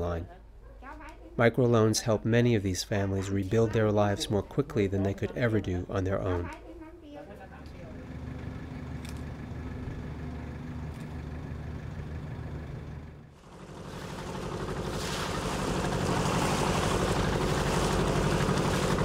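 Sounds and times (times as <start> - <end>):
motorboat engine running: 7.7 - 19.0
water rushing past hull: 13.4 - 19.0.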